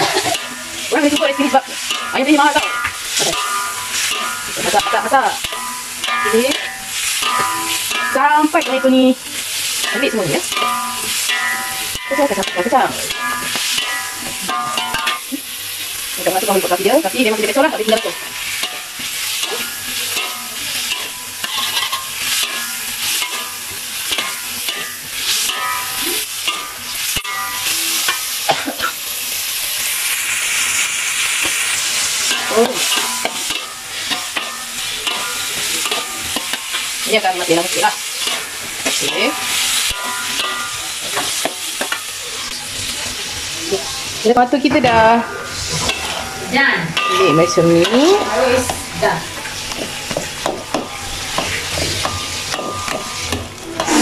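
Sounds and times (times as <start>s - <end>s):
metal ladle scraping a wok: 0.0s - 28.4s, 30.5s - 44.2s, 44.8s - 54.0s
tomatoes sizzling in hot oil: 0.0s - 54.0s.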